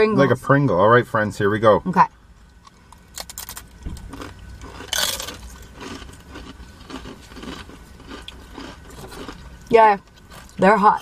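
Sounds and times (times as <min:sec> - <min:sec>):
tortilla chips crunching: 0:02.6 - 0:10.6.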